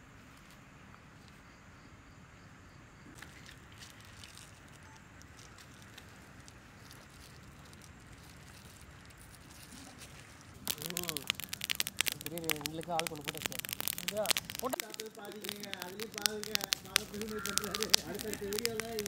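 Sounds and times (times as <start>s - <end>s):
fire crackling: 4.2s - 19.0s.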